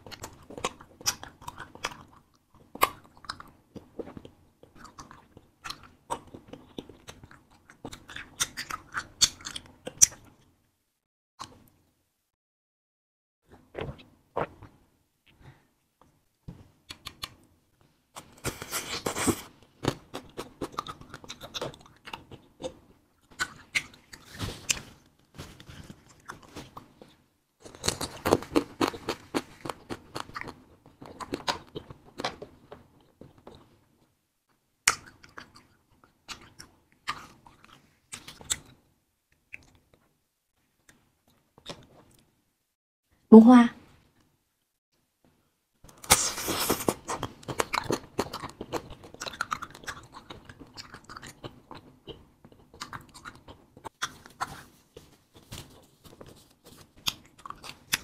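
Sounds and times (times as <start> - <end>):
chewing and biting candy: 0.0 - 10.4, 18.2 - 33.8, 34.8 - 38.8, 45.9 - 58.0.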